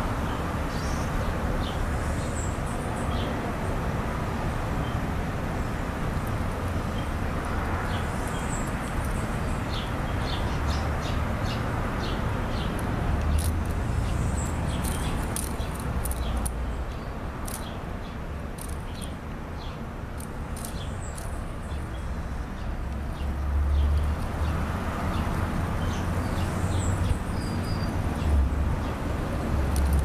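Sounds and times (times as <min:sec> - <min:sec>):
fidget spinner clicking: 0:12.7 - 0:13.8, 0:14.8 - 0:16.6, 0:17.4 - 0:17.7, 0:18.6 - 0:19.2, 0:20.2 - 0:21.4, 0:29.7 - 0:30.0.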